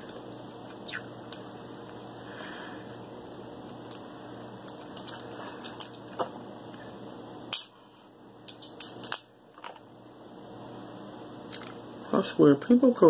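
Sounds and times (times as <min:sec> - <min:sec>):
crab shell cracking: 0:08.5 - 0:09.7.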